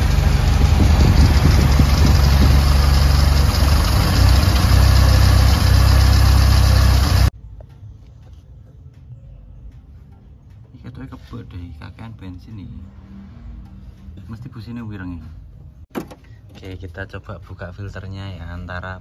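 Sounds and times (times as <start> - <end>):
car engine running: 0.0 - 7.3.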